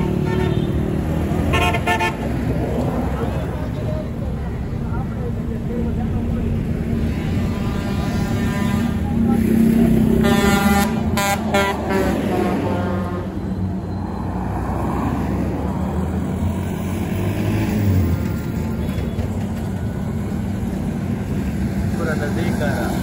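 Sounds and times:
vehicle horn: 0.0s - 2.2s, 7.1s - 9.2s, 10.2s - 13.4s.

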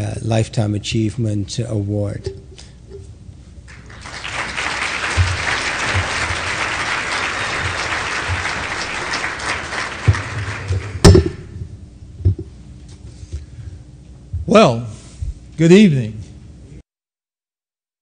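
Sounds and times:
audience applauding: 3.7s - 11.1s
sharp thump: 11.0s - 11.6s.

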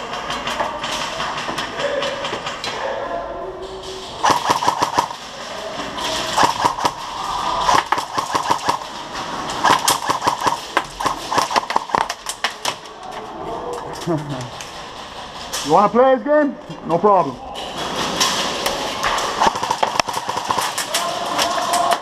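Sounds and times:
airsoft guns firing bursts: 4.2s - 12.4s, 19.3s - 22.0s.

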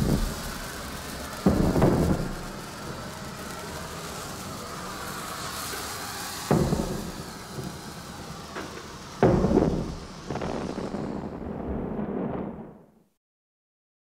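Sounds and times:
explosion booms: 0.0s - 0.8s, 1.4s - 2.7s, 6.4s - 12.9s.

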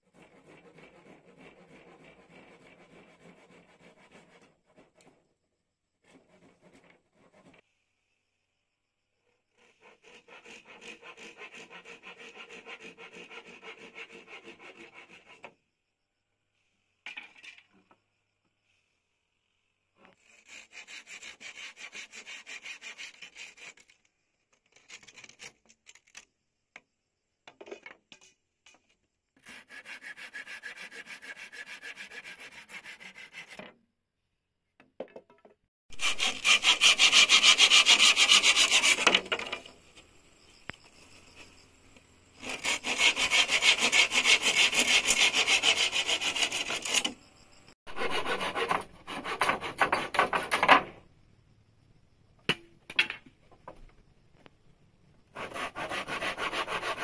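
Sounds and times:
hand saw cutting wood: 0.0s - 5.2s, 6.0s - 7.6s, 9.5s - 15.6s, 20.1s - 24.0s, 29.4s - 33.8s, 35.9s - 39.7s, 42.4s - 47.2s, 47.9s - 50.9s, 55.4s - 57.0s.

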